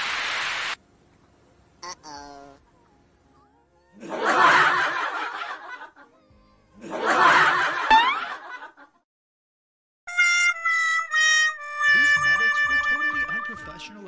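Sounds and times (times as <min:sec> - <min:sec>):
laugh track: 0:04.0 - 0:06.2, 0:06.8 - 0:09.0, 0:11.9 - 0:13.9.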